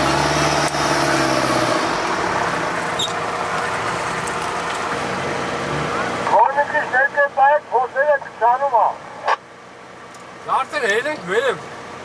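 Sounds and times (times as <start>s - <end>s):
off-road engine working hard: 0.0s - 12.0s
wheels churning mud: 1.6s - 6.2s.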